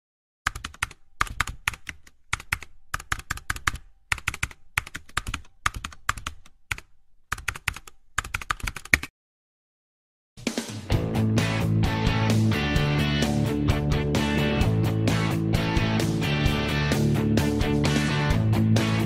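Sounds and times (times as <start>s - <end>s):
computer keyboard typing: 0.5s - 9.1s.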